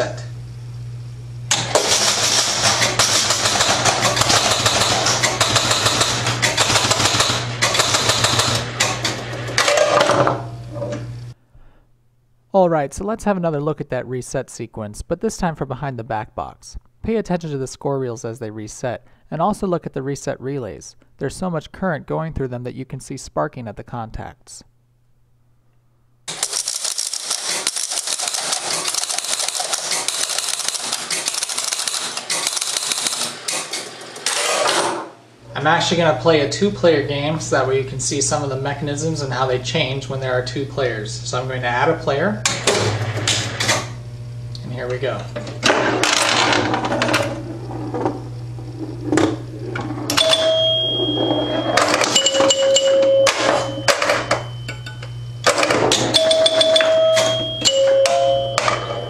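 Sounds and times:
steady low hum: 0.0 - 26.3, 35.3 - 59.0
pinball machine relays clattering: 1.5 - 11.0, 26.3 - 35.1, 42.4 - 44.0, 44.9 - 59.0
bell-like tone ringing: 50.1 - 55.3, 56.1 - 59.0.

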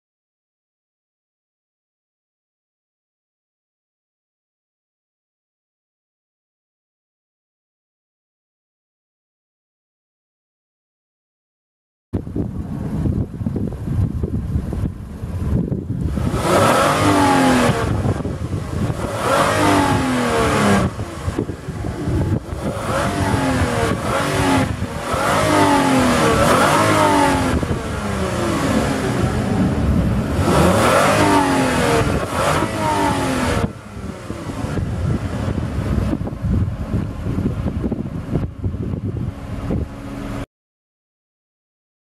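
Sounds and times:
car engine revving: 14.3 - 40.5.

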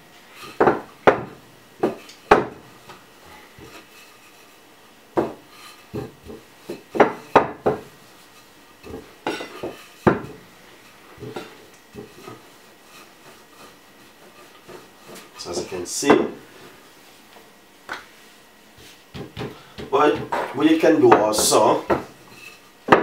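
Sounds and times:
rolling pin knocking on countertop: 0.6 - 2.6, 5.2 - 7.9, 8.9 - 10.4, 18.8 - 22.1.

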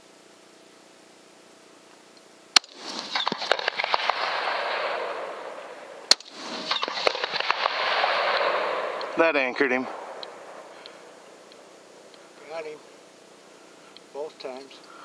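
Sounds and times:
rifle shots: 2.6 - 11.7
rushing noise with crackles: 2.6 - 11.7.

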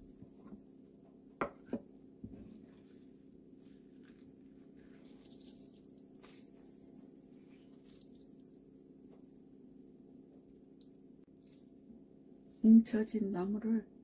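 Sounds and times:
faint steady hum: 0.0 - 14.0
wet squishing of greens: 2.4 - 8.8
water dripping on cutting board: 5.1 - 6.3.

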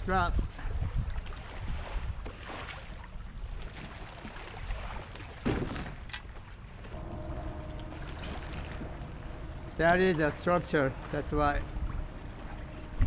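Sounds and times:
wind rumbling on microphone: 0.0 - 3.9, 6.9 - 13.0.

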